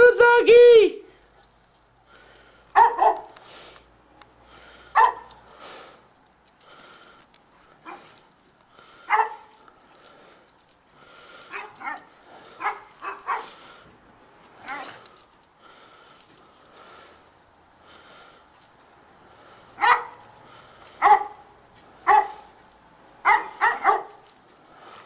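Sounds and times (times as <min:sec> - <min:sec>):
dog barking: 0:02.7 - 0:03.4, 0:05.0 - 0:05.3, 0:07.8 - 0:08.1, 0:09.1 - 0:09.5, 0:11.5 - 0:13.6, 0:19.8 - 0:20.2, 0:21.0 - 0:21.4, 0:22.0 - 0:22.5, 0:23.2 - 0:24.2.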